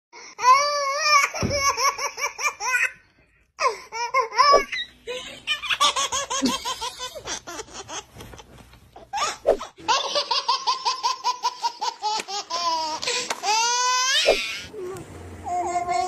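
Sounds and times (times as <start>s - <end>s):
baby laughing: 3.6s - 14.7s, 15.4s - 16.0s.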